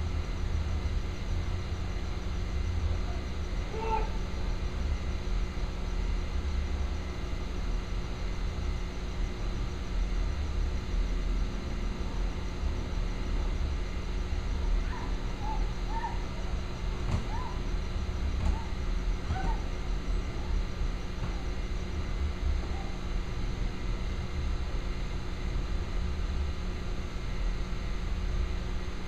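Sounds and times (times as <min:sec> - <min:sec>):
faint hum: 0:00.0 - 0:29.0
low rumble of street ambience: 0:00.0 - 0:29.0
faint short calls: 0:02.9 - 0:04.3.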